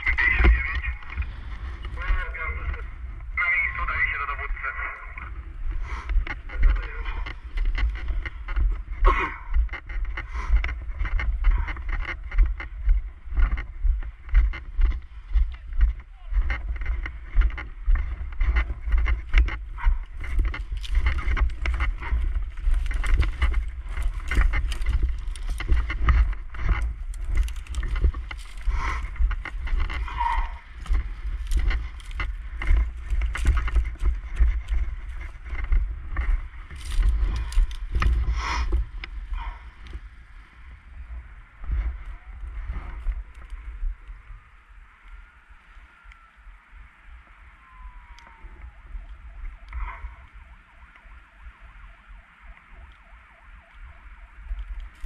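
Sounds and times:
footsteps crunching through dry grass: 0.0s - 45.4s, 46.0s - 55.0s
wind rumbling on microphone: 0.0s - 55.0s
distant siren wailing: 43.2s - 55.0s.

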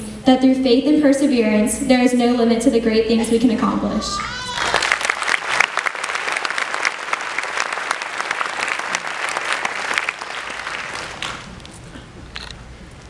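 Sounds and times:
audience applauding: 4.5s - 13.0s.

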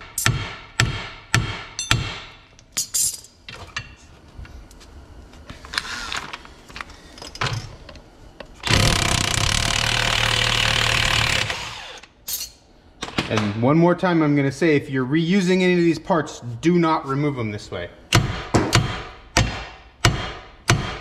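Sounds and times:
impact wrench running: 8.6s - 12.1s.

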